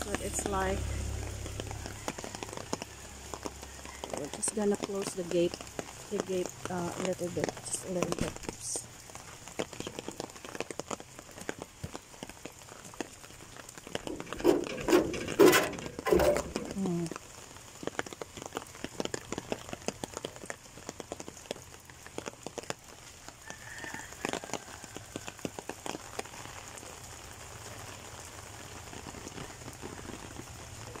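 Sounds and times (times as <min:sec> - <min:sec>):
rain falling: 0:00.0 - 0:31.0.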